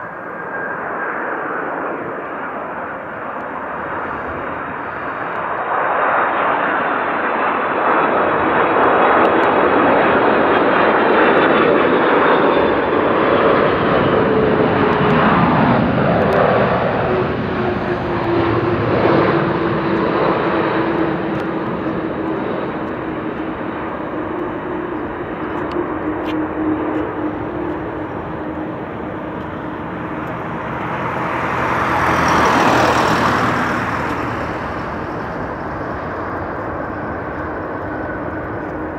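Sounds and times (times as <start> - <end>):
jet engines roaring: 0.0 - 38.9.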